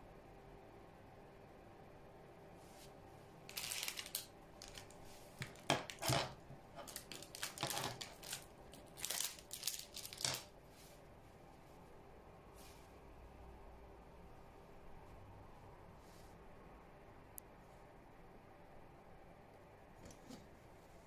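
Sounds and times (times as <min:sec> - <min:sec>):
dry crackling and rustling: 0:03.5 - 0:10.6.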